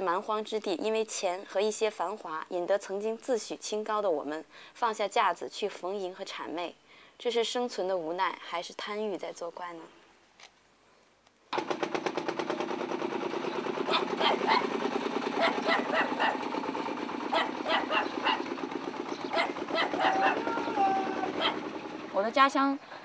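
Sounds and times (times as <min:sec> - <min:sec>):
diesel engine chugging: 0:11.6 - 0:23.0.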